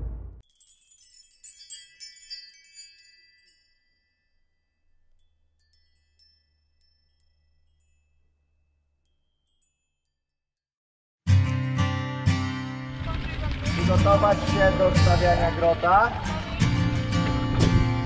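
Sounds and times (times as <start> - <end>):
sparkling chime tinkles: 0.4 - 10.4.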